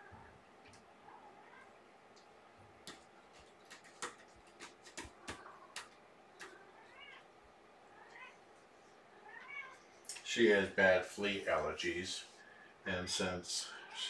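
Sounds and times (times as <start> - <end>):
faint sharp clicks and taps: 0.6 - 0.9, 2.1 - 6.6
cat meow: 1.4 - 1.7, 6.4 - 7.3, 8.0 - 8.4, 9.2 - 9.8.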